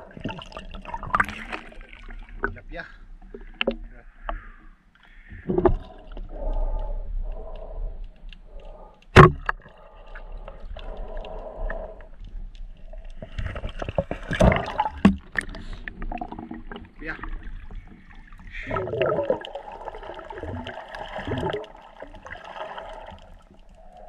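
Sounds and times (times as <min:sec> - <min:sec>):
water gurgling and sloshing: 0:00.0 - 0:24.0
splashing: 0:08.5 - 0:23.9.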